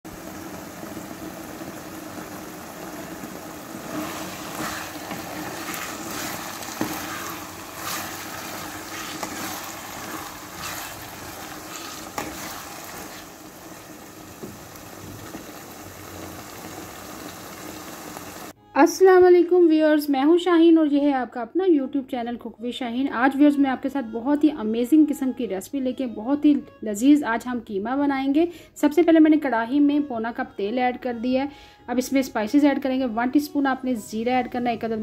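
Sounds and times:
meat sizzling in oil: 0:00.0 - 0:18.6
spoon scraping and stirring: 0:03.8 - 0:13.6.

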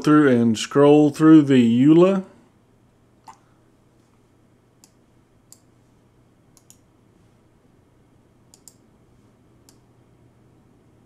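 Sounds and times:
faint low hum: 0:00.0 - 0:11.0
computer mouse clicks: 0:04.8 - 0:05.7, 0:06.5 - 0:06.9, 0:08.5 - 0:08.8.

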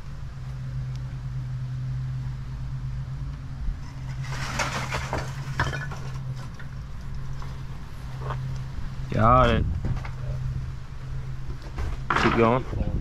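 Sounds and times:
low mechanical hum: 0:00.0 - 0:13.0
string scraping and rustling: 0:03.7 - 0:13.0.

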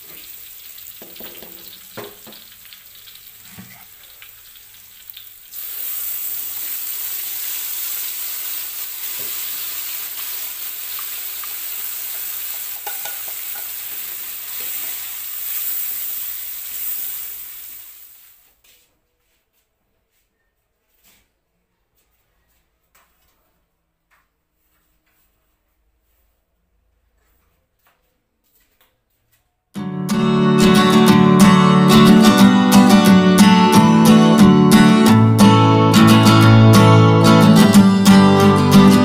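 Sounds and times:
food sizzling in oil: 0:00.0 - 0:18.4
spatula scraping and knocking pan: 0:11.0 - 0:15.1.

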